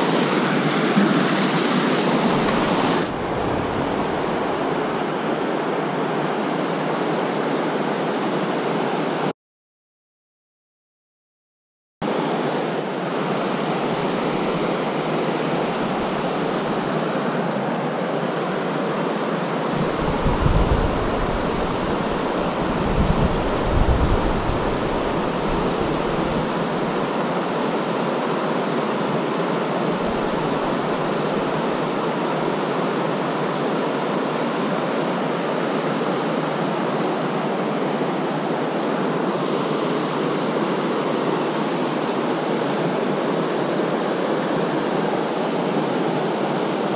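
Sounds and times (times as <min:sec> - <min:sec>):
river rapids rushing: 0:00.0 - 0:06.3, 0:12.1 - 0:46.9
low rumbles: 0:02.3 - 0:05.1.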